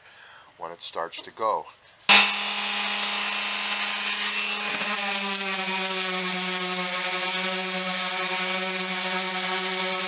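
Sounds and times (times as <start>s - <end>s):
orbital sander whining on wood: 2.1s - 10.0s.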